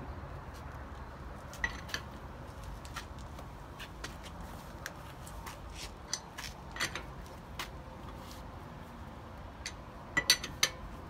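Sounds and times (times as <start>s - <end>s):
lug wrench clinking on lug nuts: 1.6s - 2.1s, 6.0s - 7.2s, 9.5s - 11.0s.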